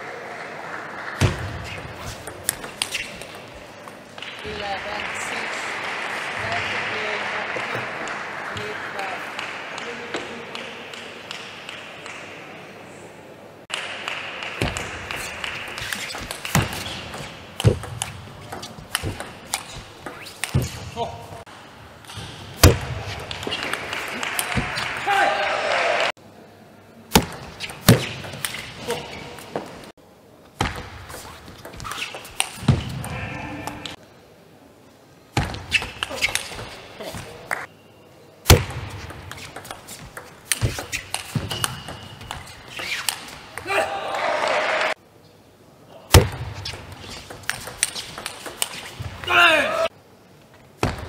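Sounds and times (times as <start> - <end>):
table tennis ball hitting bats: 1.2 - 5.3, 13.7 - 21.1, 22.0 - 25.1, 27.1 - 28.8, 38.5 - 43.7, 46.1 - 49.3.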